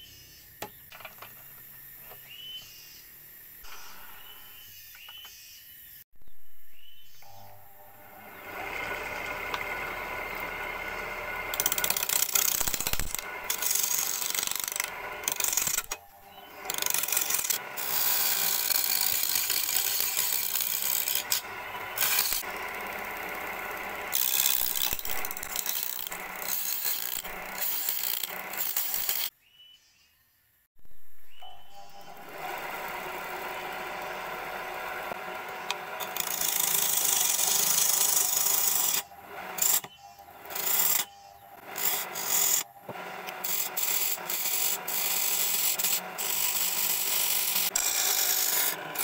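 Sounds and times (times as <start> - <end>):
lathe motor humming: 7.2 - 29.3, 31.9 - 49.0
lathe gouge scraping wood: 8.2 - 29.3, 32.1 - 49.0.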